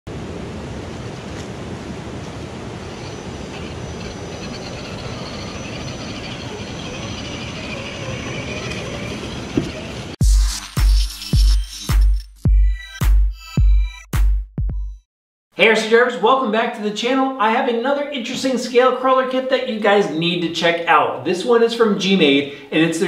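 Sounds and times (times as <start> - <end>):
faint wavering whine: 2.7 - 10.1
toy car motor and gears whirring: 2.8 - 12.1.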